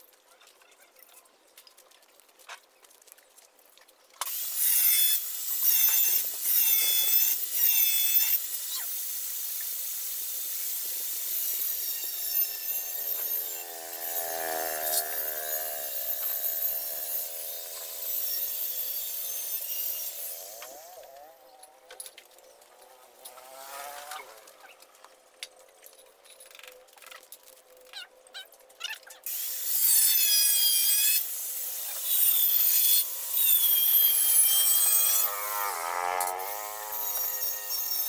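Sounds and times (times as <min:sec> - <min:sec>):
power cutting tool whining: 0:04.2 - 0:25.0, 0:29.3 - 0:38.0.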